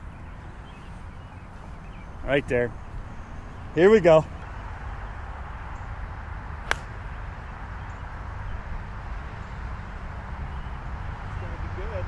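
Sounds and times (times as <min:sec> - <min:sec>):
golf club striking ball: 0:06.6 - 0:07.0.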